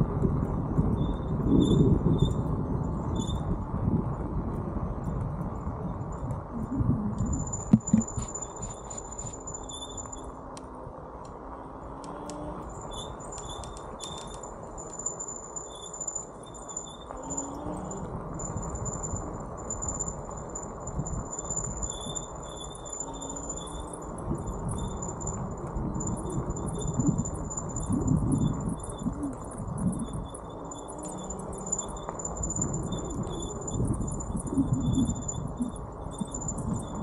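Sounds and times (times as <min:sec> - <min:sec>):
wind buffeting microphone: 0:00.0 - 0:10.3, 0:12.6 - 0:37.0
bicycle tyres on pavement: 0:00.0 - 0:37.0
scattered clicks: 0:06.2 - 0:11.4, 0:12.0 - 0:37.0
high whistle-like tone: 0:26.1 - 0:37.0.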